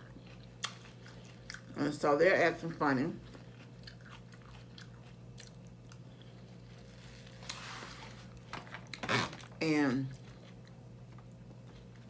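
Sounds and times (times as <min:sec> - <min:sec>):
person chewing: 0:00.0 - 0:01.8, 0:03.2 - 0:09.2.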